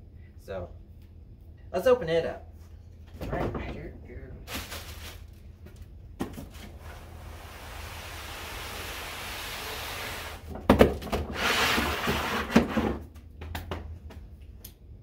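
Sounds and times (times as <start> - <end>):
loud cardboard rustling: 4.4 - 5.4
cardboard box scraping on table: 11.3 - 13.0.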